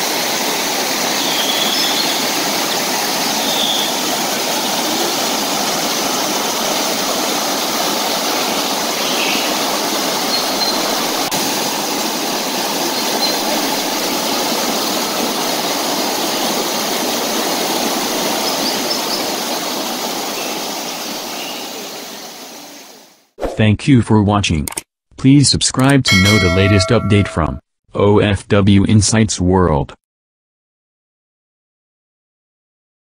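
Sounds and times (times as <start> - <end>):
river rushing over rocks: 0.0 - 22.6.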